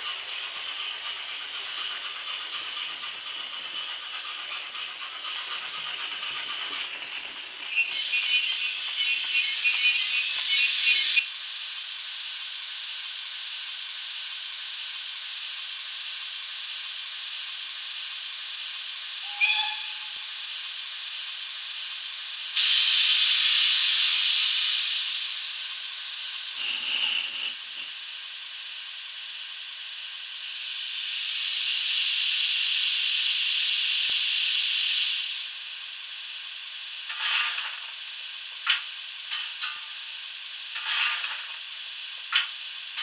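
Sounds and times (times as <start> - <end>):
high steady squeal: 0.0 - 11.2, 19.2 - 20.4, 37.1 - 38.0, 40.8 - 41.7
steam hiss: 0.0 - 11.2, 11.8 - 43.0
model train running rumble: 0.0 - 43.0
short whistle toot: 19.2 - 20.3.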